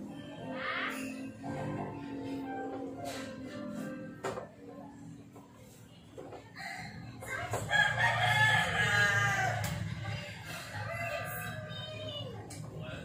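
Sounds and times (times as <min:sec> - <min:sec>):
rooster crowing: 0:07.2 - 0:09.8.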